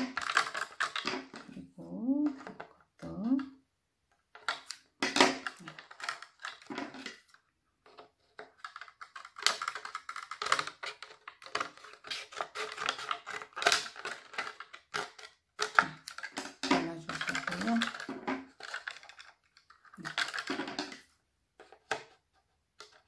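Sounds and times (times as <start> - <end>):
scissors cutting plastic cup: 8.7 - 19.3.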